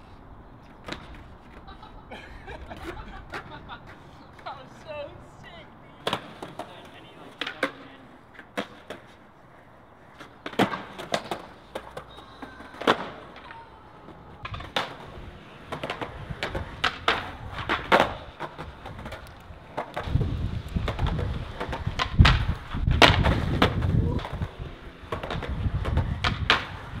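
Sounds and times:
skateboard wheels rolling: 0.0 - 27.0
skateboard pops and clacks: 0.7 - 1.7, 6.0 - 9.2, 10.2 - 27.0.

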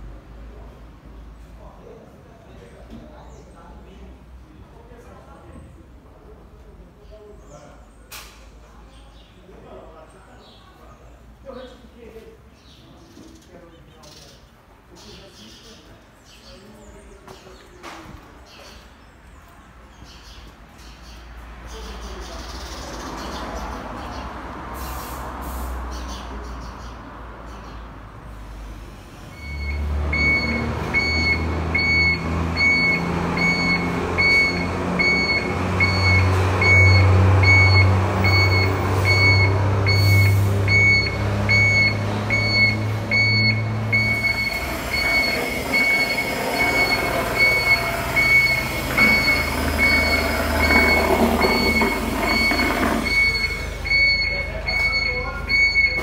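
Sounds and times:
electronic warning beeps: 29.3 - 56.0
tractor diesel engine revving: 29.3 - 56.0.

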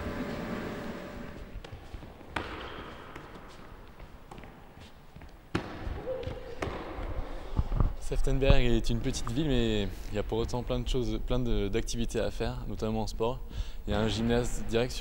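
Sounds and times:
faint background hiss: 7.1 - 15.0.

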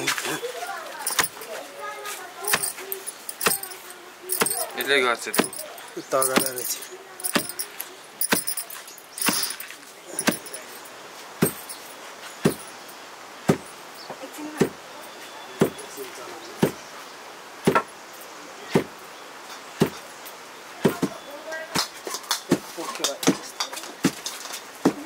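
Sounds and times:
sharp knocks: 2.5 - 4.7, 5.3 - 9.6, 10.2 - 10.8, 11.4 - 12.7.

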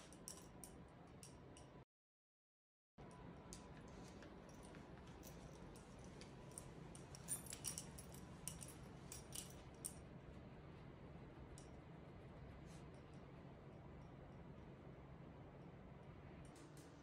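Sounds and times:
low room hum: 0.0 - 1.8, 3.0 - 17.0
leash hardware jingling: 4.6 - 10.0.

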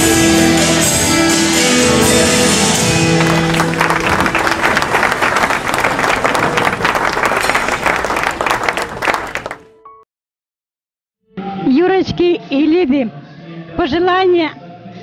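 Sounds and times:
audience applauding: 2.9 - 9.7.

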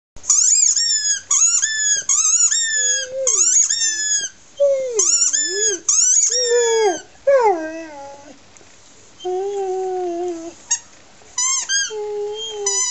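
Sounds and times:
squeaky toy squeaking: 0.3 - 7.0, 11.4 - 12.9
dog moaning: 4.6 - 8.4, 9.2 - 10.6, 11.8 - 12.9.

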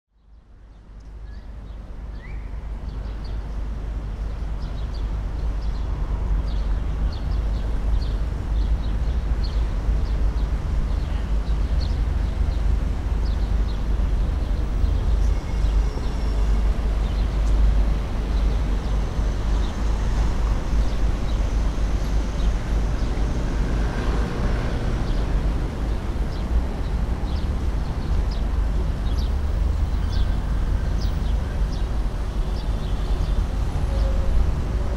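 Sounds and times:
traffic rumble: 0.8 - 34.9.

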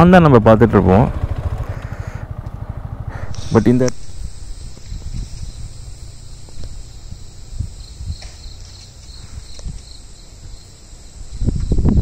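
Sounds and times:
insects droning: 0.0 - 12.0
low rumble: 0.5 - 8.2.

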